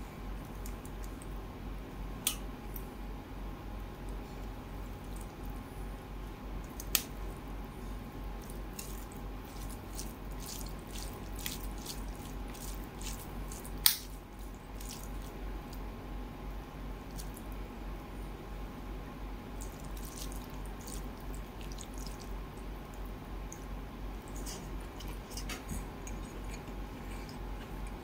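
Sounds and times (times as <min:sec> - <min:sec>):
low steady hum: 0:00.0 - 0:28.0
fingers squishing rice and curry: 0:08.2 - 0:17.6, 0:19.6 - 0:28.0.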